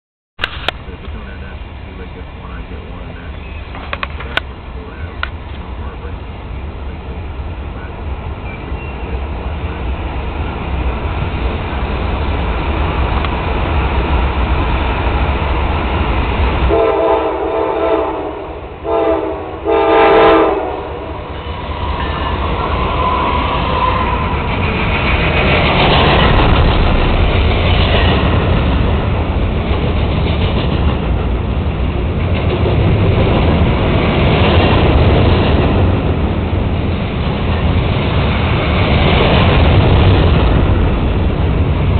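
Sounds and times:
diesel train rumble: 0:00.4 - 0:41.9
locomotive horn blasts: 0:16.7 - 0:21.4.

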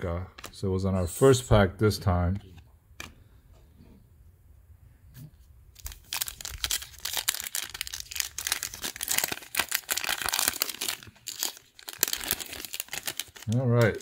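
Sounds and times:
foil wrapper crinkling and tearing: 0:05.8 - 0:14.0.

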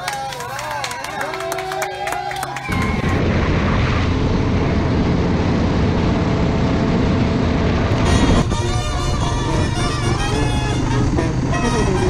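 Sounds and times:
motorcycle engine at highway speed: 0:03.8 - 0:12.0.

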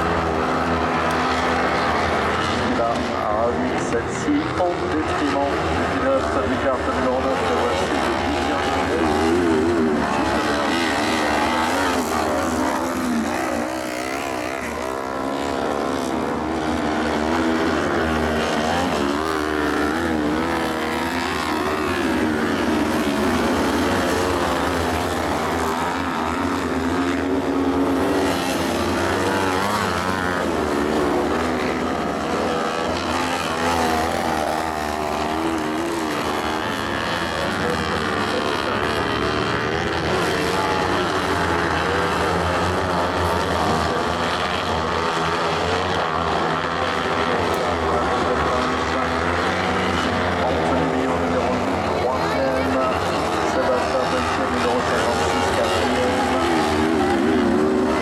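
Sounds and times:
buggy engines revving: 0:00.0 - 0:58.0.

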